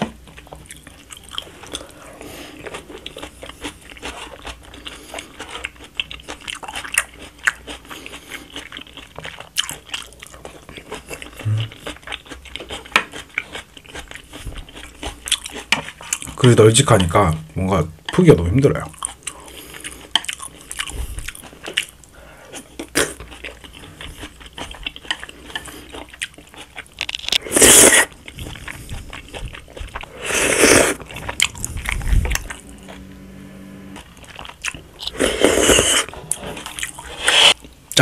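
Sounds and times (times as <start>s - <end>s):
chewing: 0.0s - 17.1s, 18.8s - 33.0s, 34.0s - 38.0s
loud slurping: 30.1s - 37.6s.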